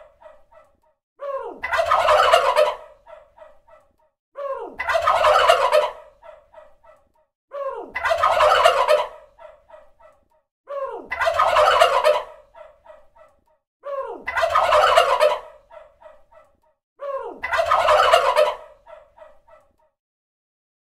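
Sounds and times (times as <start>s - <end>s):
turkey gobbling: 1.6s - 3.6s, 4.8s - 6.4s, 8.0s - 9.9s, 11.1s - 13.0s, 14.3s - 16.2s, 17.4s - 19.6s.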